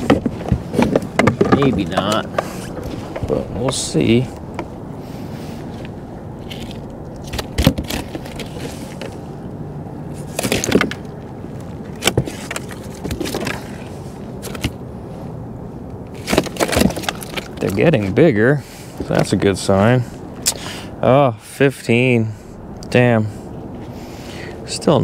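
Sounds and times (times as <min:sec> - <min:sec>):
knocks and scrapes on plastic kayak: 0:00.0 - 0:03.8
steady low rumble: 0:00.0 - 0:25.0.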